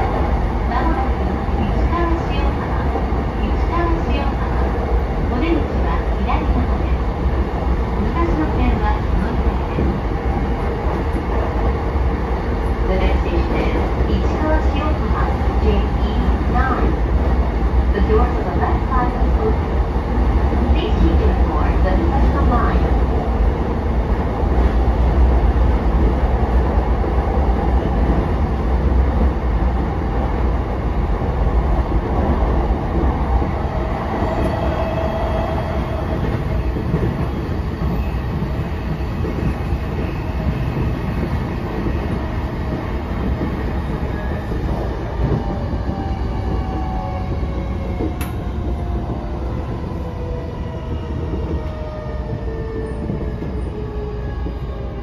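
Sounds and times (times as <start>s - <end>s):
train wheels rumbling on rails: 0.0s - 55.0s
sharp click: 48.2s - 48.4s.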